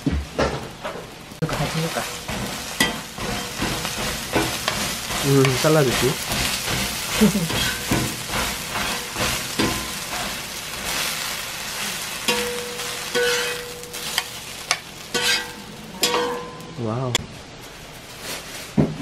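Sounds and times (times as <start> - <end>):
frying sizzle: 0.0 - 19.0
metal spatula scraping griddle: 1.6 - 16.6.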